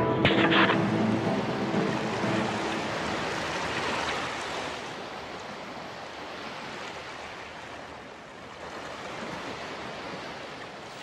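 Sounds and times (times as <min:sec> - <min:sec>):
rushing sea waves: 0:00.0 - 0:11.0.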